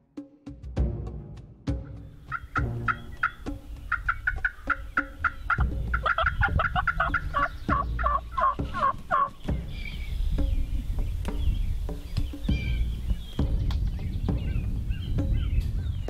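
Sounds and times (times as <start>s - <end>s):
turkey yelping: 2.2s - 11.0s, 11.8s - 13.4s.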